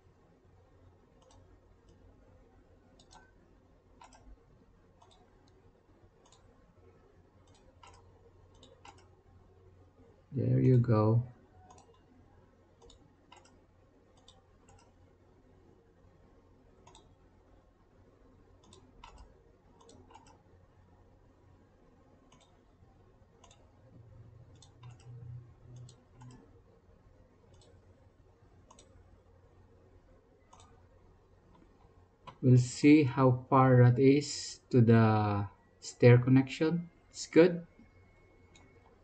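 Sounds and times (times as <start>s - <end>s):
faint low murmur: 0.0s - 39.0s
computer mouse clicks: 1.1s - 2.1s, 2.9s - 3.4s, 4.0s - 4.4s, 5.0s - 5.6s, 6.2s - 6.5s, 7.4s - 9.2s, 11.6s - 12.1s, 12.8s - 15.1s, 16.8s - 17.2s, 18.6s - 20.5s, 22.3s - 22.7s, 23.4s - 23.8s, 24.4s - 26.6s, 27.4s - 28.0s, 28.6s - 29.1s, 30.4s - 32.4s, 37.7s - 39.0s.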